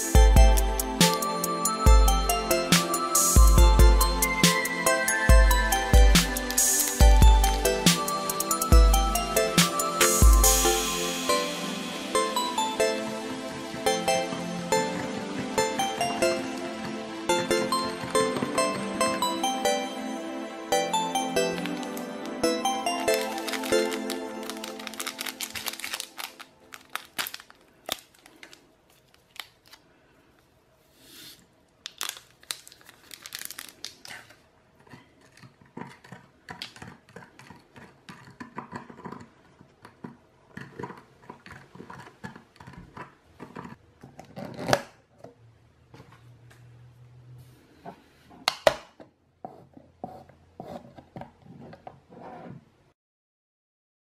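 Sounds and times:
plastic wrapper crinkling: 21.5s - 30.0s, 31.7s - 35.3s.

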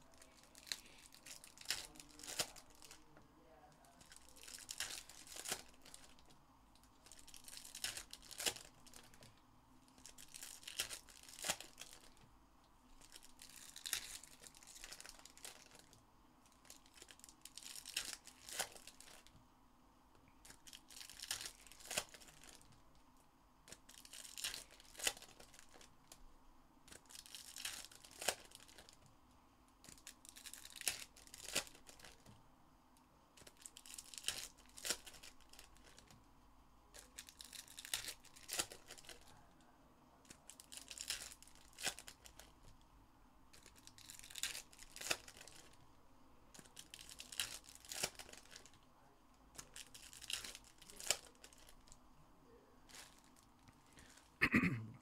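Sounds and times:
foil wrappers tearing and crinkling: 0.0s - 3.0s, 3.9s - 6.3s, 7.0s - 9.2s, 9.9s - 12.2s, 13.0s - 16.0s, 16.6s - 19.3s, 20.4s - 22.8s, 23.7s - 26.2s, 26.9s - 29.0s, 29.8s - 32.3s, 33.4s - 36.2s, 37.0s - 39.3s, 40.3s - 42.6s, 43.5s - 45.8s, 46.6s - 48.8s, 49.6s - 52.0s, 52.9s - 54.3s.

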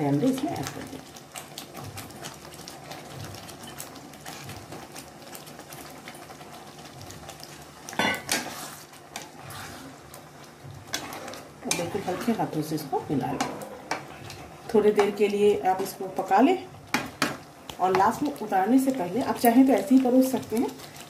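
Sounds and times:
gravy bubbling in a wok: 0.0s - 21.0s
metal spatula scraping pan: 8.0s - 10.0s, 10.9s - 12.6s.

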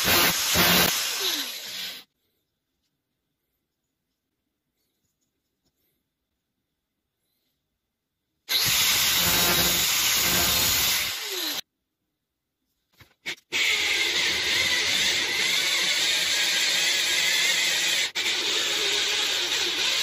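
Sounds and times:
electric drill cutting steel: 0.0s - 2.1s, 8.5s - 11.6s, 13.5s - 20.0s
angle grinder grinding: 8.5s - 11.6s.

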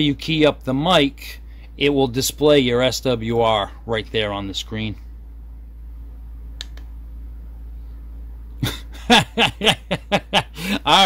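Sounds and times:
steady low hum: 0.0s - 11.0s
faint click: 6.6s - 6.9s.

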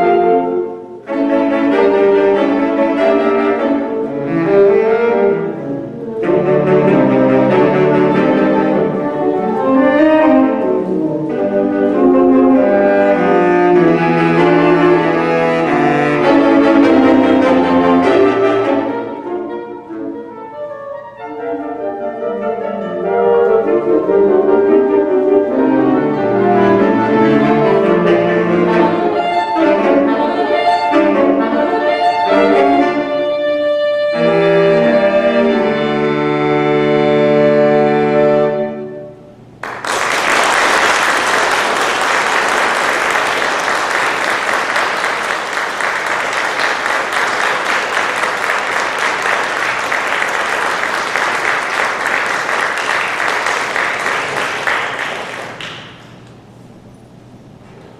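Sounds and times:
saxophone quartet playing: 0.0s - 57.8s
audience applause: 39.6s - 56.3s.

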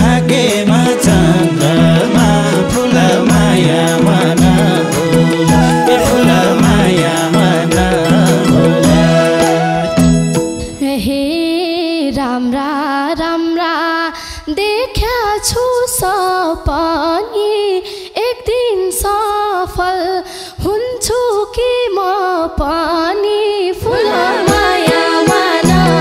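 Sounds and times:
woman singing into a microphone: 0.0s - 26.0s
band instruments playing: 0.4s - 10.8s.

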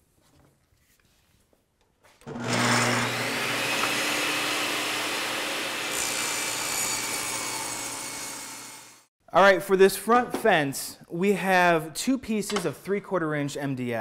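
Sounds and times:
table saw running: 2.2s - 9.1s.

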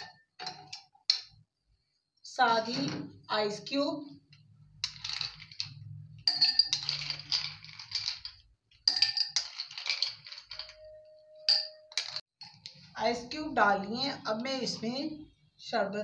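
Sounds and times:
ice cubes clinking: 4.8s - 12.6s.

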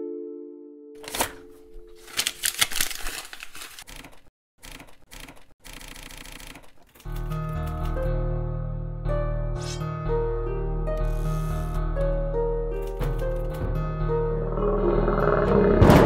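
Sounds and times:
music: 0.0s - 1.9s, 7.1s - 16.0s
paper noise: 1.0s - 5.5s
typewriter clicking and rattling: 2.0s - 8.0s.

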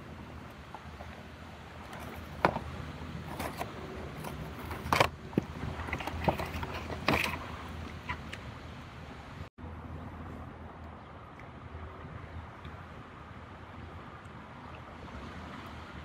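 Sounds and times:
cardboard and plastic crinkling: 1.9s - 7.7s.

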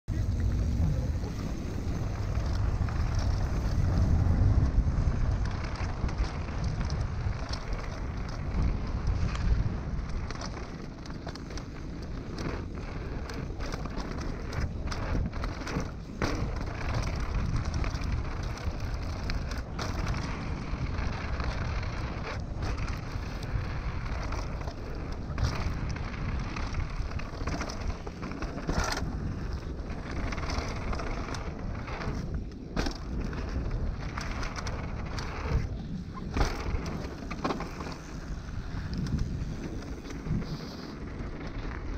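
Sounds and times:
bike knocking and rattling: 0.1s - 41.9s
bike tyres rolling on rough trail: 0.1s - 41.9s
wind buffeting microphone: 0.1s - 41.9s.

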